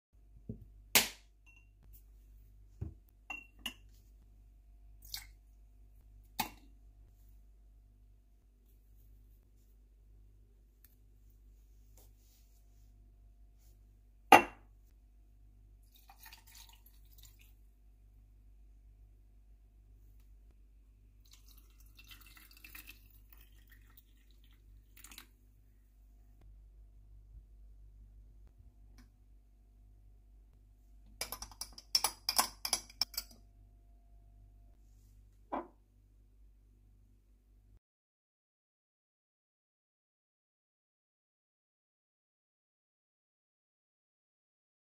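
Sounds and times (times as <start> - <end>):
teaspoon clinking glass mug: 3.3 - 3.8
water pouring into mug: 15.8 - 17.6, 21.2 - 25.4.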